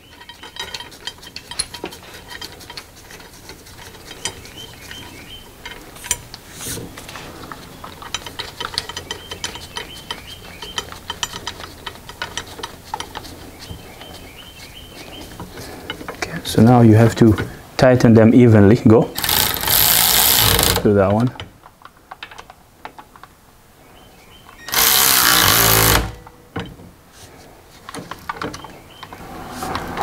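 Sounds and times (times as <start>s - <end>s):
metal clinks and knocks: 0.0s - 14.2s
ratchet clicking: 19.2s - 20.8s, 24.7s - 26.2s.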